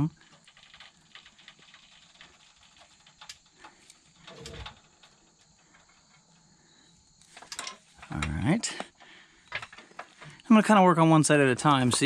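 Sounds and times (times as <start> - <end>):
crickets trilling: 0.0 - 12.0
floor jack creak: 3.6 - 4.9.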